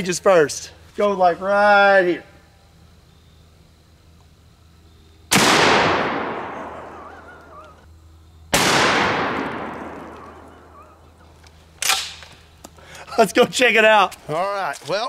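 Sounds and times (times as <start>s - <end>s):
shotgun blasts with echo: 5.3s - 7.2s, 8.5s - 10.8s.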